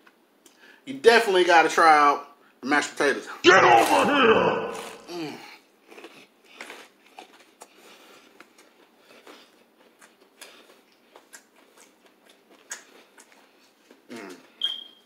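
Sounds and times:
chewing crispy food: 4.7s - 14.6s.

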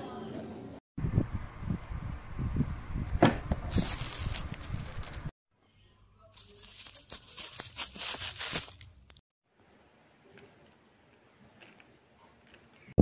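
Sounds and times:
plastic bag crinkling: 3.7s - 5.3s, 6.3s - 9.2s.

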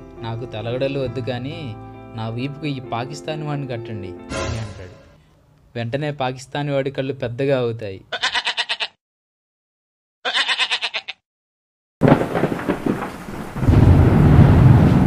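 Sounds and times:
thunder sound effect: 12.0s - 15.0s.

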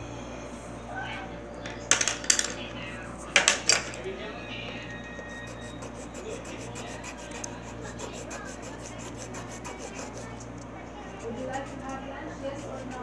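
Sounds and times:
quick rubbing and scratching: 5.5s - 13.0s.

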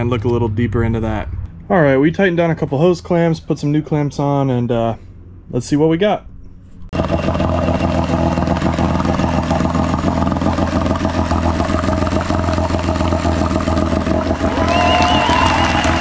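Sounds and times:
outboard motor running: 6.9s - 16.0s
propeller churning water: 6.9s - 16.0s.

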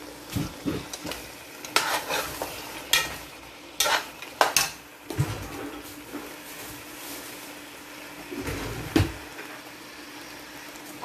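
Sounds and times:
food sizzling: 0.0s - 11.0s
metal spoon scraping a pot: 1.7s - 3.2s, 3.8s - 4.7s.

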